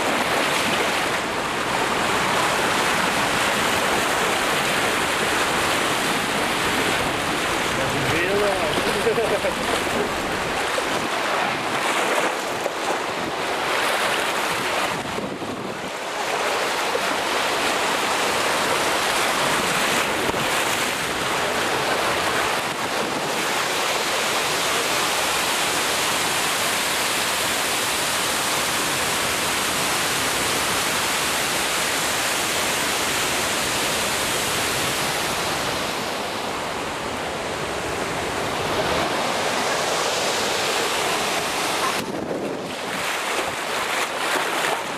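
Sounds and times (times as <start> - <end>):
rushing splashing water: 0.0 - 44.9
wind noise on microphone: 9.9 - 16.3, 19.4 - 23.8, 41.0 - 44.9.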